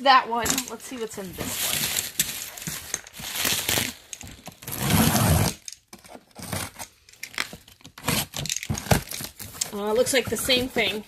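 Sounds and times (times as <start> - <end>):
plastic stretch wrap crinkling: 1.0 - 5.0
cardboard boxes being handled: 7.9 - 11.0.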